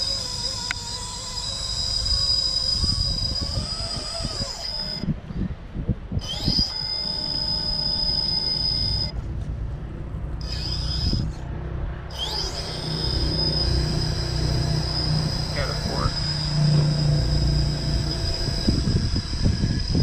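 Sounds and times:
electric motor whining: 0.0 - 5.2, 6.1 - 9.2, 10.3 - 20.0.

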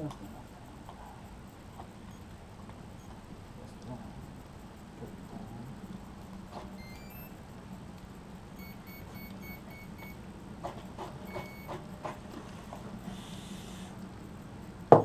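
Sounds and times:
electronic beeps: 6.7 - 7.5, 8.6 - 10.2, 11.2 - 11.9.

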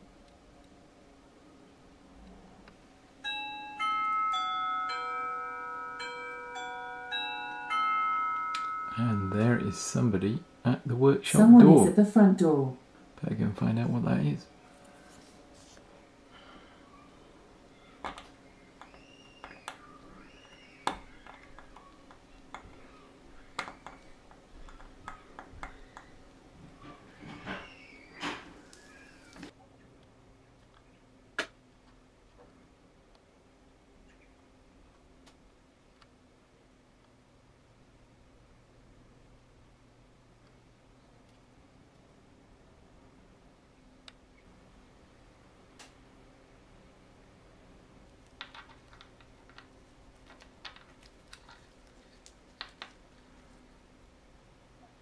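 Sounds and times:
faint steady hum: 0.0 - 55.0
doorbell chime tune: 3.2 - 10.2
rising and falling chirps: 16.8 - 24.1, 27.6 - 29.4.

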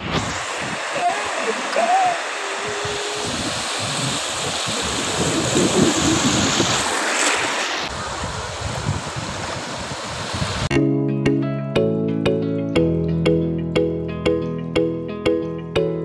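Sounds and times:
sea surf washing in: 0.0 - 10.7
wind buffeting microphone: 2.2 - 10.7.

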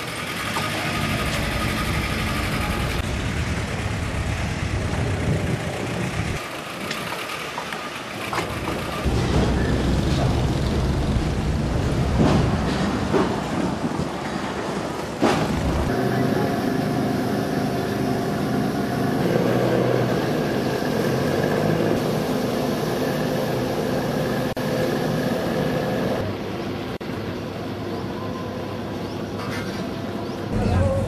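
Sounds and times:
engine humming: 0.0 - 13.8, 14.8 - 27.3.

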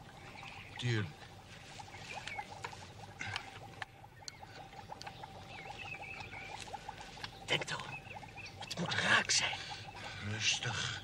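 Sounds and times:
leaves and twigs rustling: 0.0 - 4.0, 4.6 - 9.3
faint steady hum: 0.0 - 11.0.

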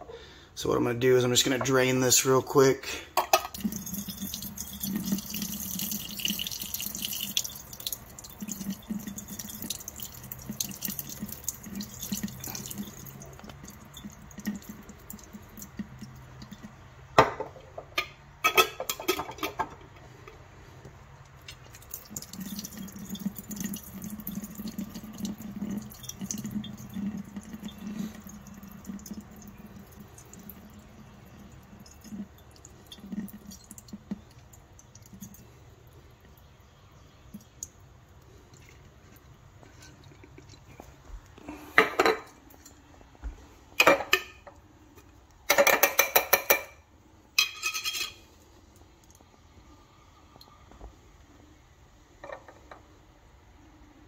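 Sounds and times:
water splashing into sink drain: 3.2 - 16.8, 21.4 - 35.4
water trickling and dripping: 3.4 - 17.1, 21.2 - 41.4.

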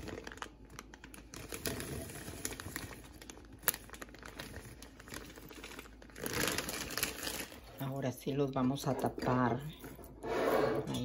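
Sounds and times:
plastic bag crinkling: 0.0 - 8.5.

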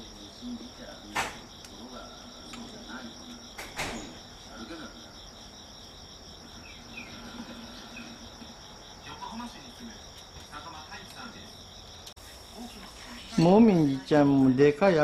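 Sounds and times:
insects trilling: 0.0 - 15.0
sharp knocks: 1.1 - 1.5.

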